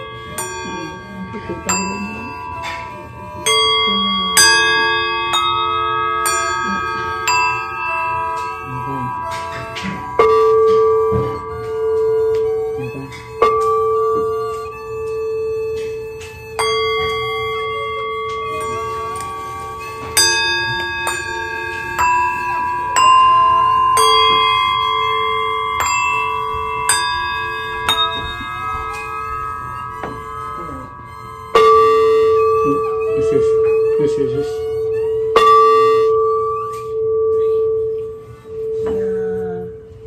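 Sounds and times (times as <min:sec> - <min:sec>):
bell-like instrument struck: 0:00.0 - 0:40.0
erhu bowed long notes: 0:00.0 - 0:40.0.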